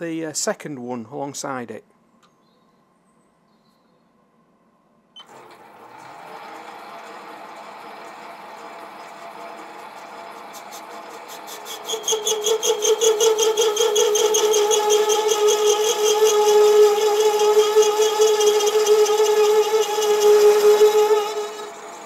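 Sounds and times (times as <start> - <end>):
lathe turning: 5.2 - 22.0
pulsing ringing tone of cutting: 10.5 - 22.0.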